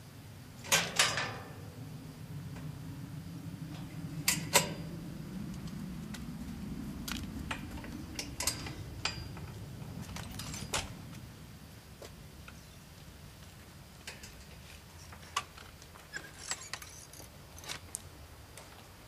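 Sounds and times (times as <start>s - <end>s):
low steady hum: 0.0s - 19.0s
metal gate lock clicking: 0.6s - 1.6s, 4.2s - 4.9s, 8.2s - 9.4s.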